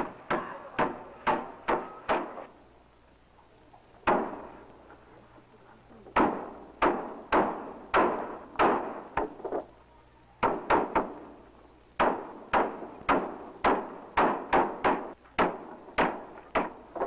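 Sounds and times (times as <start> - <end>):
hammer blows on wooden boards: 0.0 - 2.5, 6.1 - 9.7, 10.4 - 17.0.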